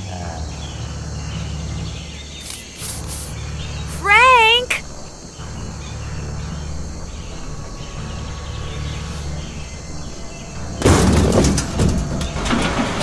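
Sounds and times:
faint bird calls: 0:02.0 - 0:10.8
low rumble: 0:04.8 - 0:13.0.

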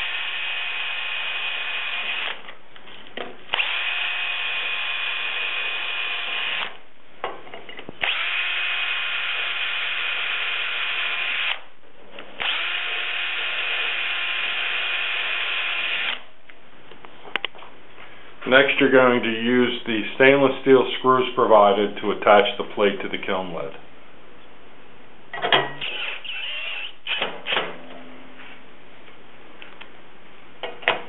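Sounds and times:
cordless drill whining through metal: 0:00.0 - 0:02.5, 0:03.5 - 0:06.8, 0:08.0 - 0:11.6, 0:12.4 - 0:16.3, 0:25.8 - 0:27.3.

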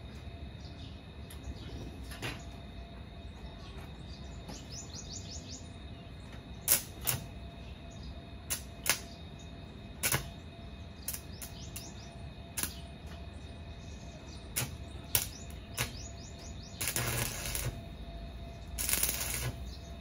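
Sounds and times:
arc welder crackling: 0:06.4 - 0:07.5, 0:08.4 - 0:13.2, 0:14.4 - 0:20.0.

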